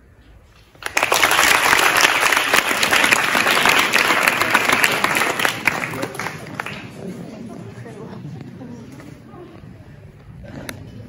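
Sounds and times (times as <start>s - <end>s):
audience applauding: 0.8s - 7.1s.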